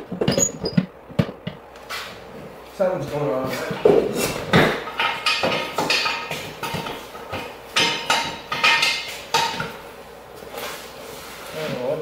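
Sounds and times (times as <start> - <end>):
sharp metal-on-metal knocks: 4.5 - 9.8.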